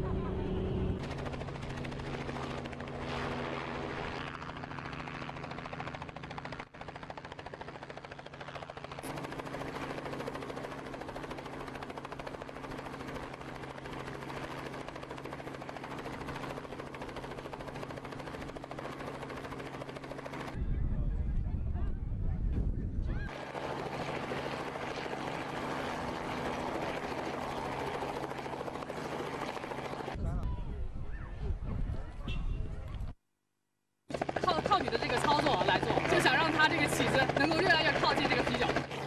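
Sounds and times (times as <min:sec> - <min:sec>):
low engine hum: 0:00.0 - 0:01.7
helicopter rotor beating: 0:00.0 - 0:20.6, 0:23.3 - 0:30.2, 0:34.1 - 0:39.0.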